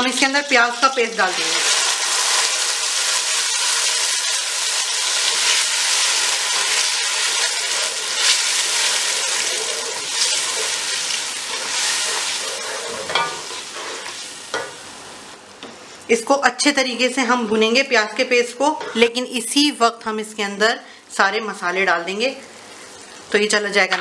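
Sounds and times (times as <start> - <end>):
onion paste sizzling in oil: 0.0 - 15.4
wooden spoon stirring: 7.4 - 14.3.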